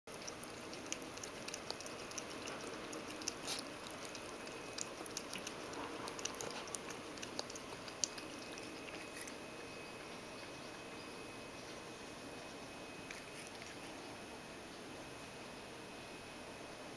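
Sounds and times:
cat lapping water: 0:00.1 - 0:11.2, 0:13.1 - 0:13.9.

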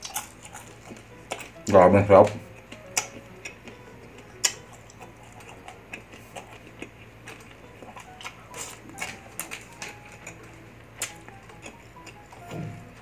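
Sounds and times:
chewing food: 0:00.0 - 0:13.0.

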